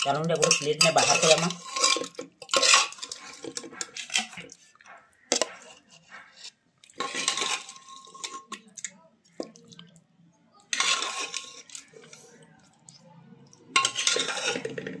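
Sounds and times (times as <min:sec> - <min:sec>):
metal ladle scraping a pot: 0:00.0 - 0:08.6, 0:10.7 - 0:12.4, 0:13.7 - 0:15.0.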